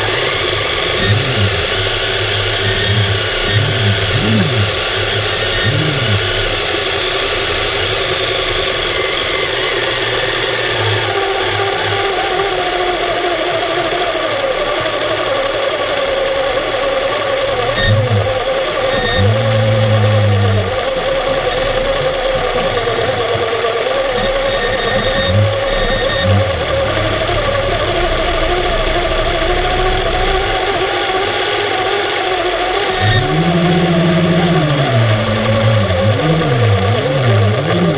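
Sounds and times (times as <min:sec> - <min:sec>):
wavering tone: 0:00.0 - 0:06.7, 0:17.5 - 0:31.5, 0:32.1 - 0:37.9
underwater mechanical hum: 0:00.0 - 0:37.9.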